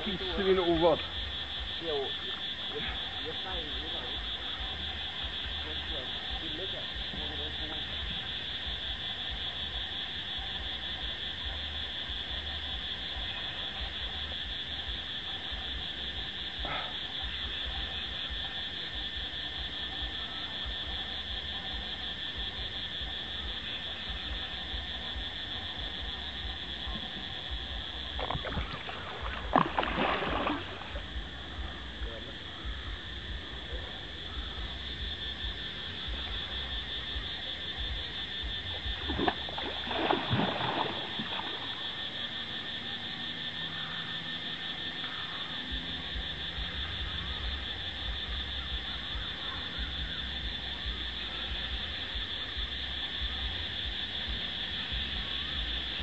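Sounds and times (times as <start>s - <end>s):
high-pitched insect chorus: 0.0s - 56.0s
fish splashing at the surface: 28.2s - 31.1s, 38.9s - 41.9s.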